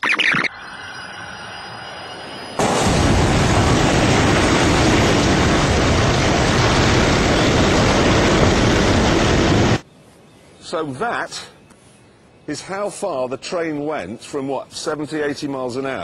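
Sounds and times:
train crash rumble: 2.1 - 9.8.

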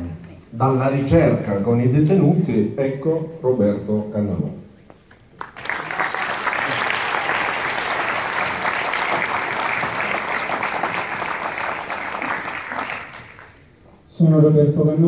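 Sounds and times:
audience applauding: 5.3 - 13.8.

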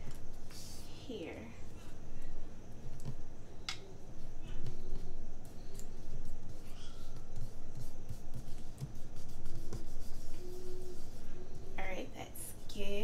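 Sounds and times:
paper rubbing and taps: 7.2 - 10.4.

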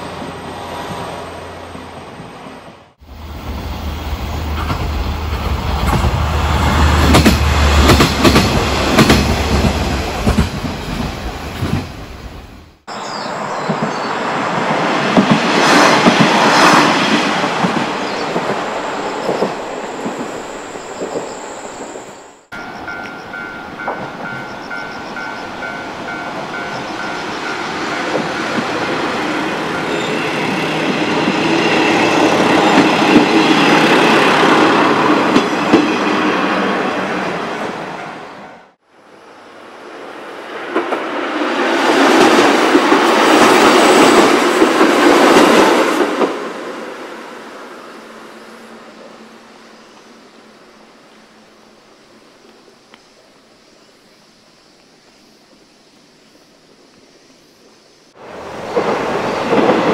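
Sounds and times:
diesel railcars running past: 0.0 - 51.6, 58.1 - 59.9
level-crossing bell ringing: 22.5 - 30.3.

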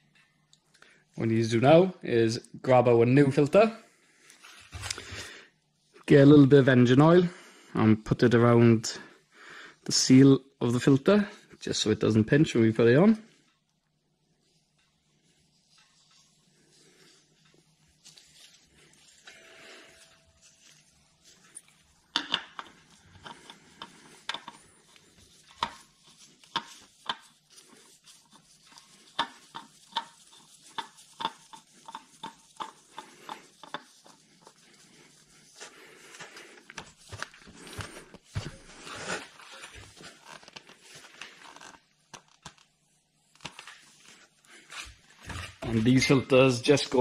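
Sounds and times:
oil filter rubbing as turned: 20.0 - 42.6.

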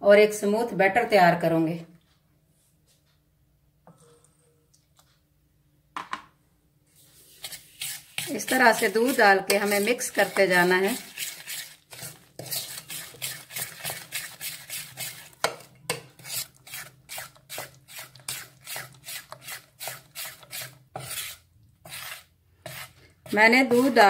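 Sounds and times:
metal spoon scraping bowl: 7.2 - 24.0.

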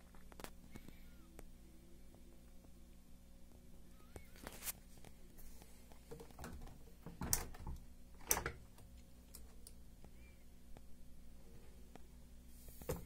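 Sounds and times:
plastic door clicks and knocks: 6.1 - 8.6.

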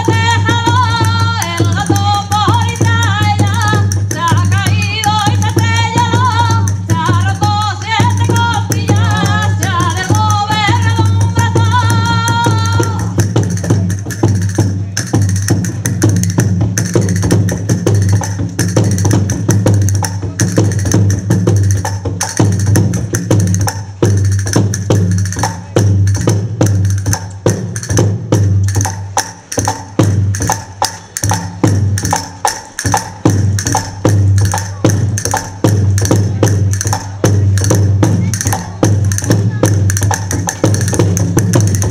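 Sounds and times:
woman singing: 0.0 - 13.3
frame drum beat: 0.0 - 41.9.

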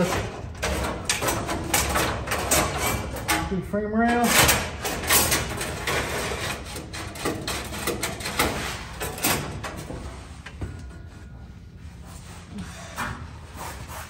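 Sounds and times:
metal tubing scraping and clicking: 0.0 - 11.0.

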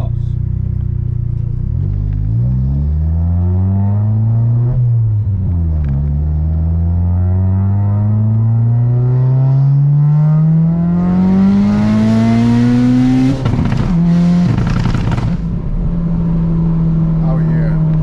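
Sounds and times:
car engine revving under throttle: 1.3 - 18.0.

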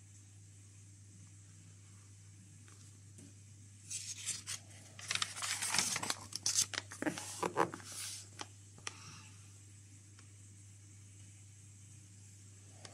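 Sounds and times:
paper pages rustling: 3.9 - 8.4.

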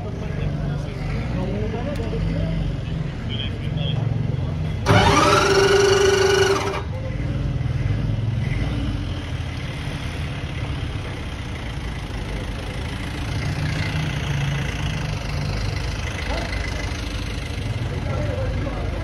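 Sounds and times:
car engine idling unevenly: 3.1 - 8.6, 14.6 - 19.0
car engine revving: 4.8 - 7.0.

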